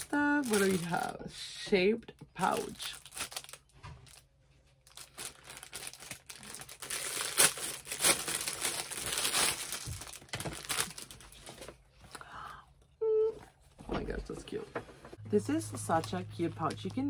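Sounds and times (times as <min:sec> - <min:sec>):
plastic wrapper crinkling: 0:00.0 - 0:01.3, 0:02.2 - 0:12.1, 0:15.9 - 0:17.0.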